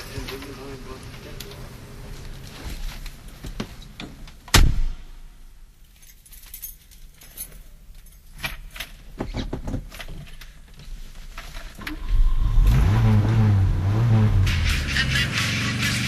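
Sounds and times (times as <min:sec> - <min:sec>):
loud thump: 0:04.5 - 0:05.2
low steady rumble: 0:11.8 - 0:15.0.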